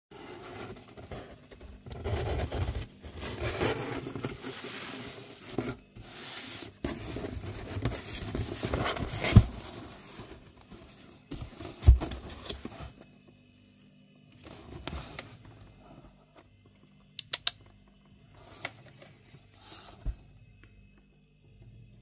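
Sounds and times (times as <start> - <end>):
cardboard box flaps rustling: 0.3 - 13.0.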